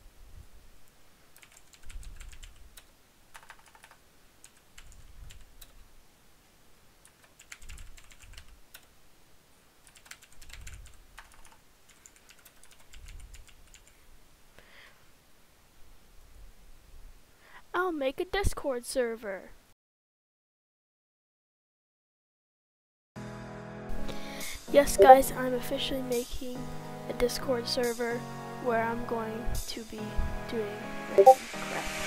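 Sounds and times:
typing on computer keyboard: 1.4 - 5.8, 7.0 - 8.9, 9.8 - 14.0.

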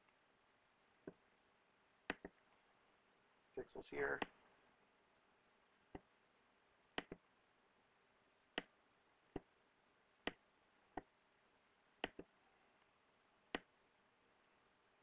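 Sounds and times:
mouse button clicking: 2.1 - 2.4, 7.0 - 7.2, 12.0 - 12.3.

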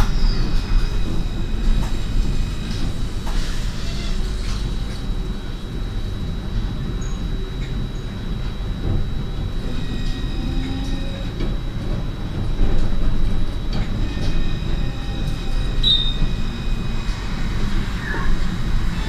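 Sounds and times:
tram squeak: 0.0 - 4.9, 9.6 - 11.4, 13.7 - 19.0
tram rumble: 0.0 - 19.0.

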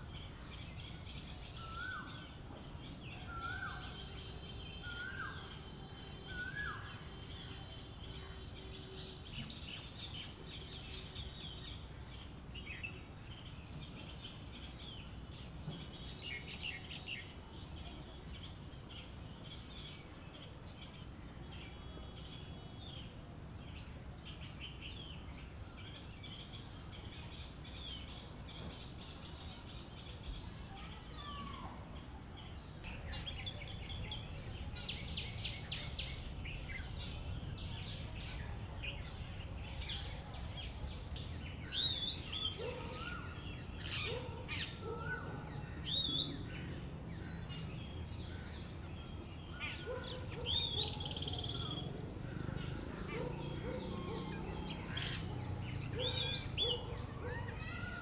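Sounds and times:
birds chirping and whistling: 0.8 - 17.8, 32.9 - 58.0.

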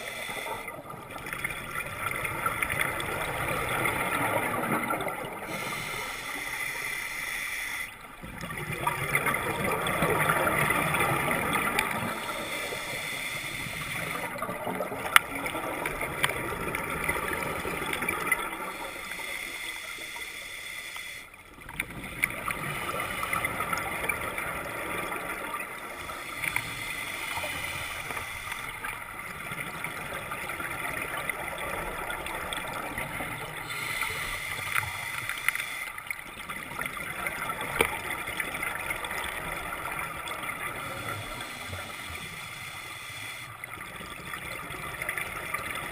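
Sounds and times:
underwater regulator bubbles: 0.0 - 20.3
quiet breaths: 0.0 - 45.9.

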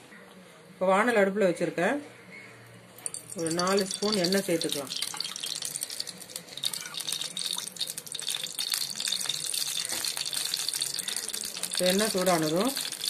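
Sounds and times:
spoon clicking on pan: 3.0 - 13.0.

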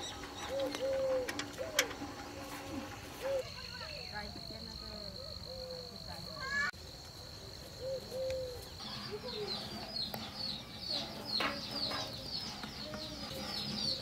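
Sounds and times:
small birds chirping: 0.0 - 1.9, 3.2 - 14.0
chickens clucking: 0.0 - 3.5.

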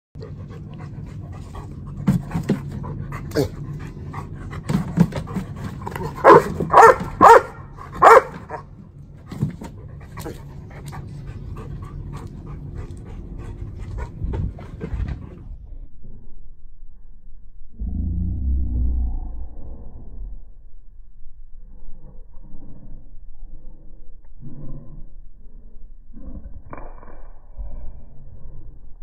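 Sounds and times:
dog panting: 0.2 - 8.6, 9.4 - 15.6
dog barking: 6.2 - 8.7.

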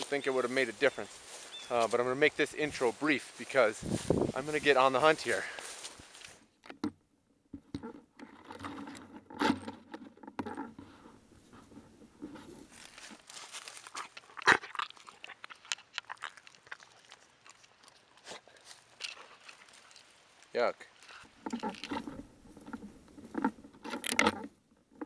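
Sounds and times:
footsteps crunching dry leaves: 0.0 - 6.6, 10.9 - 21.4
twigs snapping: 5.5 - 6.8, 12.3 - 25.0.

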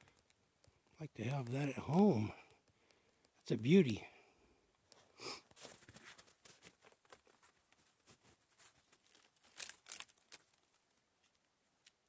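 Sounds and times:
wood splinters cracking and snapping: 9.1 - 10.5.

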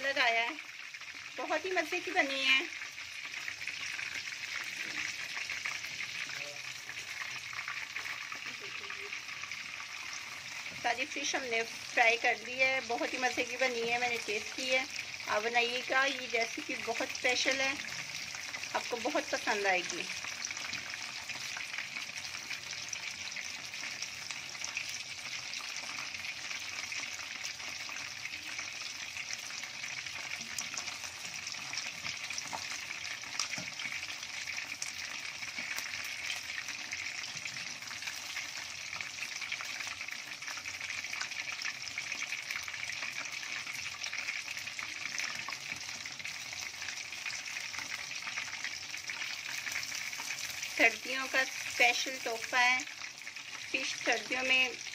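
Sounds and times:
fish sizzling in hot oil: 0.0 - 54.9.

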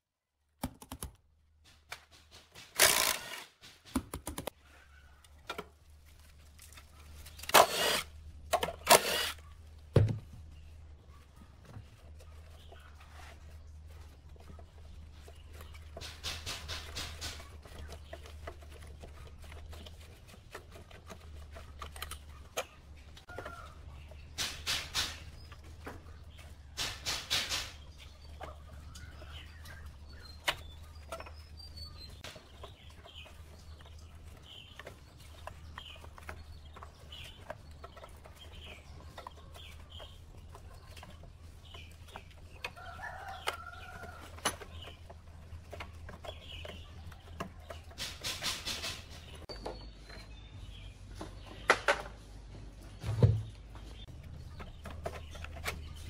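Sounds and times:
chickens clucking: 4.5 - 56.0.

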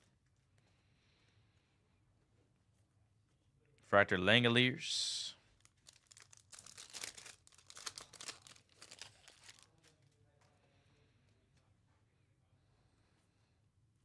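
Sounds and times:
foil wrapper tearing and crinkling: 5.6 - 10.1.

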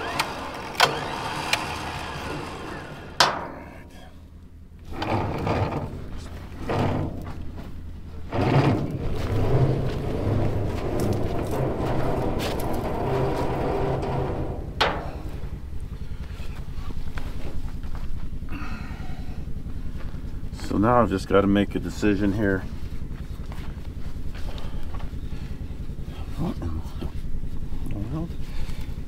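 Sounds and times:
low engine hum: 0.0 - 29.0
footsteps on dirt: 7.2 - 18.5, 19.5 - 20.5, 22.6 - 25.8
winch rope pulled out: 8.3 - 15.5.

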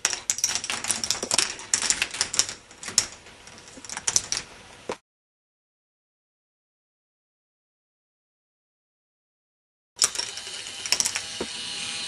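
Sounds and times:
plastic balls clicking on track: 0.0 - 4.5, 10.0 - 11.4.

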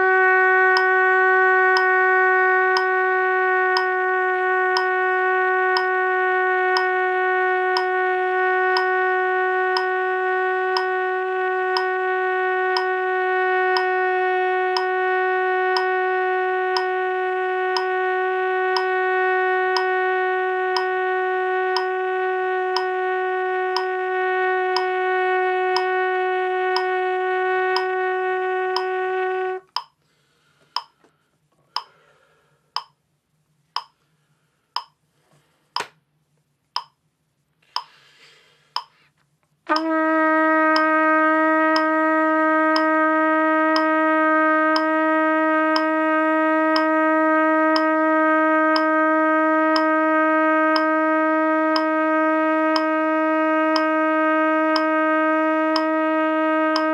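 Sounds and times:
trumpet long tone: 0.0 - 29.8, 39.7 - 56.9
metronome clicking: 0.8 - 1.0, 1.8 - 2.0, 2.8 - 3.0, 3.8 - 4.0, 4.8 - 5.0, 5.8 - 6.0, 7.8 - 8.0, 8.7 - 9.2, 9.8 - 10.0, 10.8 - 11.0, 11.8 - 12.0, 12.8 - 13.0, 13.8 - 14.0, 14.8 - 15.0, 15.8 - 16.0, 16.8 - 17.0, 18.8 - 19.0, 19.8 - 20.0, 20.8 - 21.0, 21.8 - 22.0, 22.8 - 23.0, 23.8 - 24.0, 24.8 - 25.0, 25.8 - 26.0, 26.8 - 27.0, 29.7 - 30.0, 30.8 - 31.0, 31.8 - 32.0, 32.8 - 33.0, 33.8 - 34.0, 34.8 - 35.0, 36.8 - 37.0, 37.8 - 38.0, 38.8 - 39.0.

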